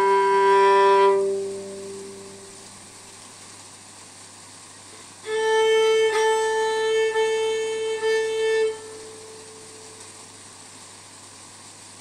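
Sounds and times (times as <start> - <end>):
fiddle long held note: 0.0 - 3.0, 5.2 - 10.3
steady background hiss: 0.0 - 12.0.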